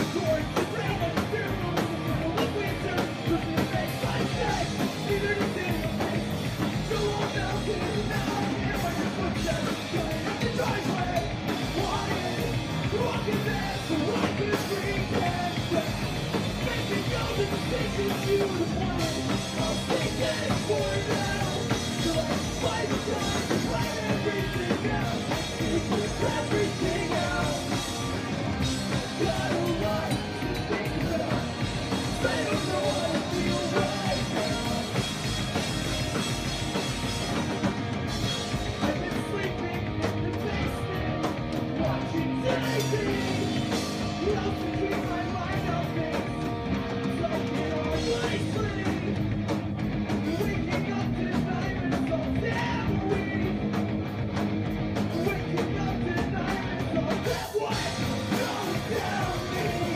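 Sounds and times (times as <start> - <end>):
person singing: 0.0 - 35.4, 38.2 - 49.2, 50.2 - 53.6, 55.1 - 59.9
bass guitar: 0.0 - 59.9
drum kit: 0.0 - 59.9
electric guitars: 0.0 - 59.9.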